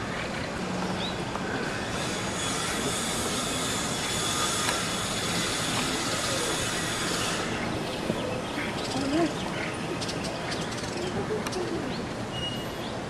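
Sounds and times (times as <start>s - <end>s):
steady hiss with high whine: 0.0s - 8.8s.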